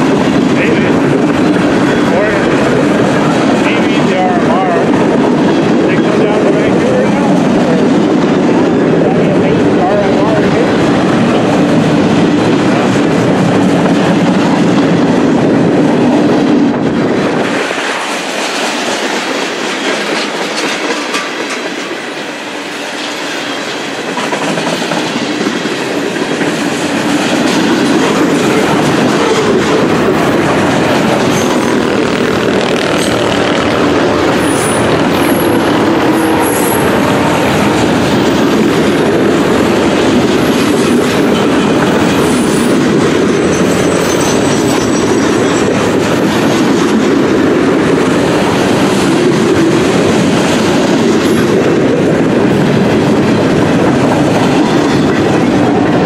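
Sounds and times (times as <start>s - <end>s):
train wheels clattering on rails: 0.0s - 56.0s
high wheel squeal: 41.2s - 45.7s.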